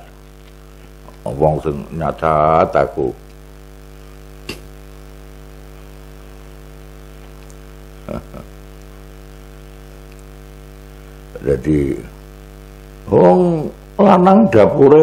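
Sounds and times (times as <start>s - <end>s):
electrical mains hum: 0.0s - 15.0s
sharp click: 4.4s - 4.7s
short vocal sound: 8.0s - 8.5s.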